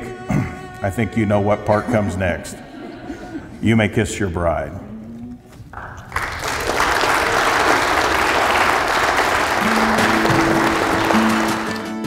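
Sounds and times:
people applauding: 0:05.7 - 0:12.0
guitar music: 0:09.4 - 0:12.0.

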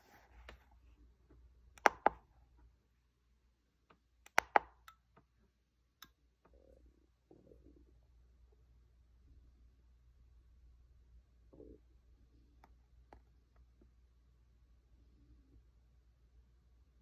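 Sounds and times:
keypad buttons clicking: 0:01.8 - 0:02.2, 0:04.3 - 0:05.0.

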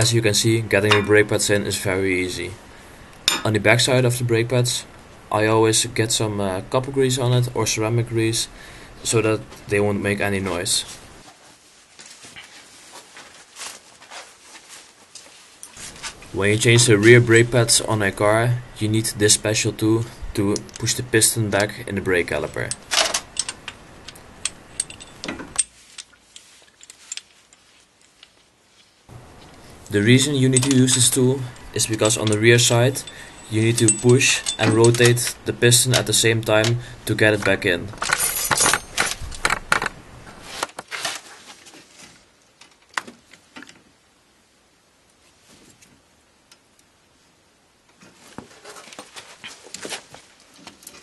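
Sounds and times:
faint low background noise: 0:00.0 - 0:51.0
metal tool clicking and clinking: 0:00.9 - 0:01.2, 0:03.3 - 0:03.5, 0:22.5 - 0:27.3, 0:30.4 - 0:36.8, 0:37.4 - 0:39.9
metal tool clicks and scrapes: 0:30.5 - 0:36.8.

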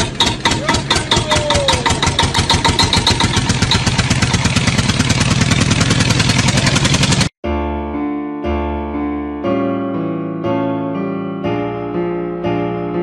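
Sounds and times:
small engine puttering: 0:00.0 - 0:07.3.

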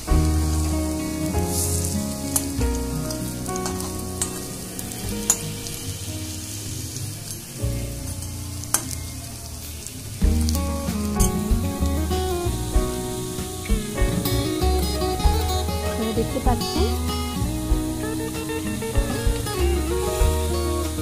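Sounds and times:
oil sizzling and crackling: 0:00.0 - 0:21.0
soft background music: 0:00.0 - 0:21.0.

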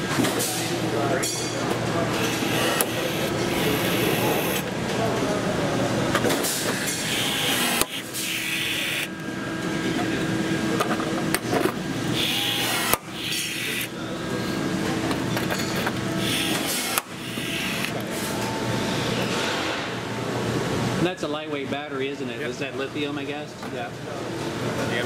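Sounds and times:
murmur of voices: 0:00.0 - 0:25.0
rivet tool motor whirring: 0:02.1 - 0:04.7, 0:06.9 - 0:09.1, 0:12.1 - 0:13.9, 0:16.2 - 0:18.0.

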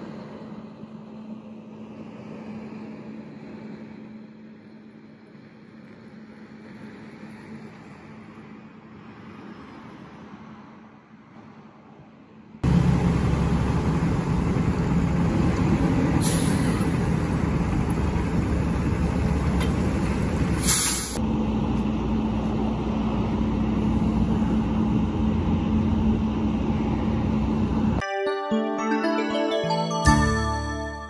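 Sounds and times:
diesel truck engine running: 0:12.6 - 0:28.0
short air hisses: 0:16.2 - 0:17.0, 0:20.6 - 0:21.2.

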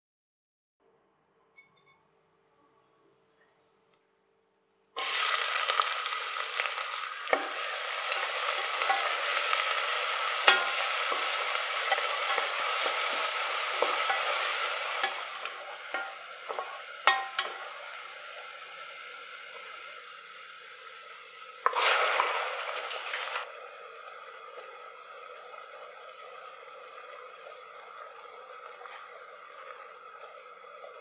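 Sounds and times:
onions sizzling in oil: 0:05.0 - 0:31.0
spatula knocking against pot: 0:16.0 - 0:17.6.

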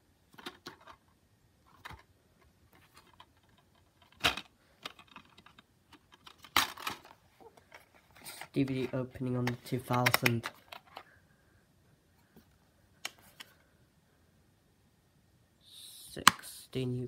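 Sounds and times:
plastic case click and rattle: 0:00.4 - 0:01.0, 0:02.9 - 0:07.8, 0:09.4 - 0:11.1.

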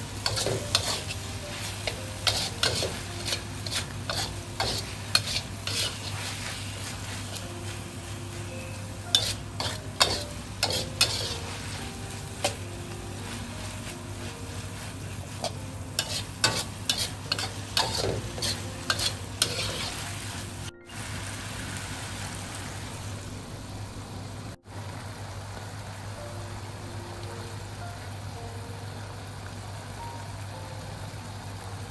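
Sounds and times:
meat sizzling in a wok: 0:00.0 - 0:23.2
metal spatula scraping wok: 0:00.2 - 0:07.4, 0:09.1 - 0:11.8, 0:15.0 - 0:20.5.

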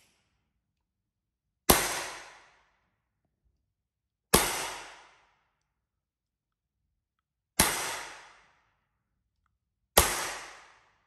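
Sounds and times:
pellet pistol shot: 0:01.7 - 0:02.6, 0:04.3 - 0:05.3, 0:07.6 - 0:08.5, 0:10.0 - 0:11.0.

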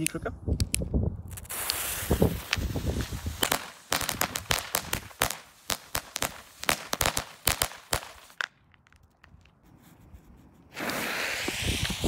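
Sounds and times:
firecrackers banging: 0:01.4 - 0:08.5.

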